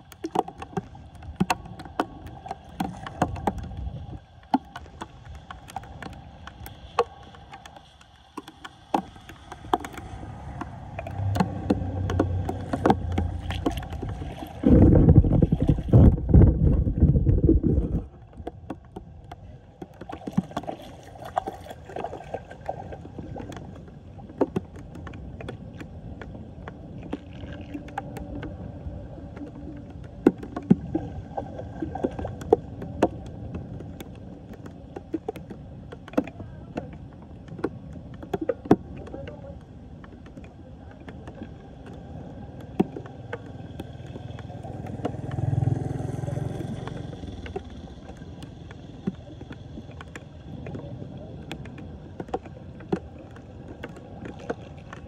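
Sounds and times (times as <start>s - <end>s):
water swirling down storm drain: 0.0s - 26.4s, 41.2s - 55.0s
small splashes: 0.0s - 55.0s
loud low rumble: 10.8s - 18.1s.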